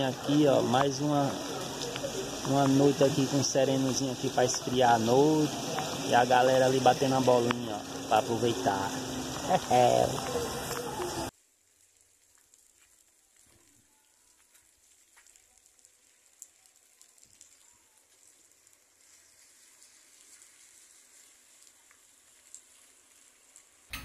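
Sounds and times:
faint steady rain: 0:00.0 - 0:24.0.

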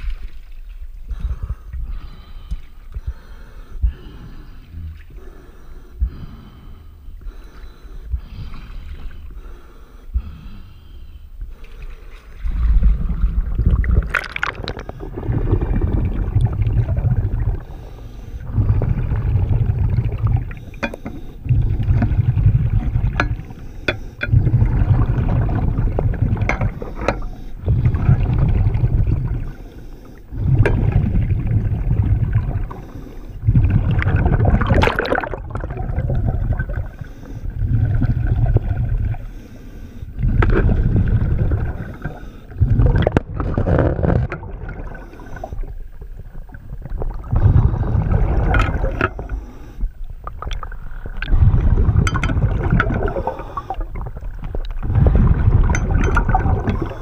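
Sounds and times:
underwater exhaled bubbles gushing: 0:12.3 - 0:57.0.

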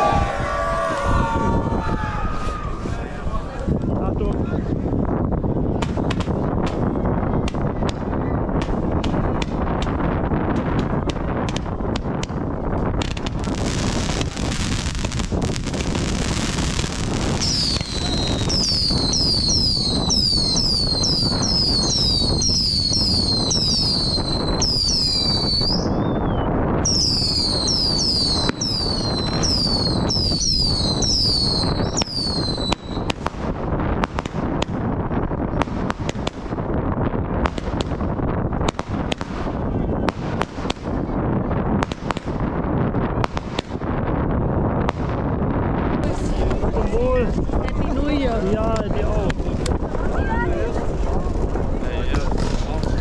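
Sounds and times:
fireworks crackling and banging: 0:02.4 - 0:53.0
fireworks whistling: 0:13.0 - 0:42.5.

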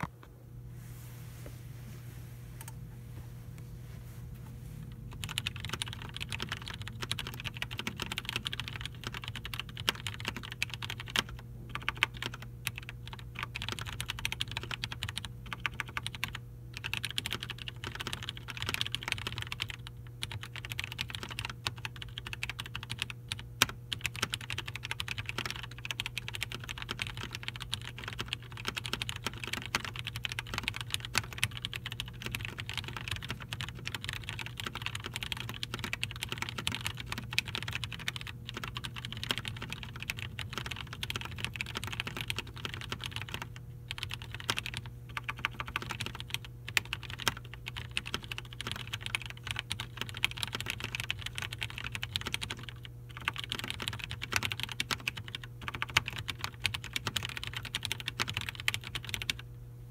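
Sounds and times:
fast typing on mechanical keyboard: 0:05.1 - 0:59.4.

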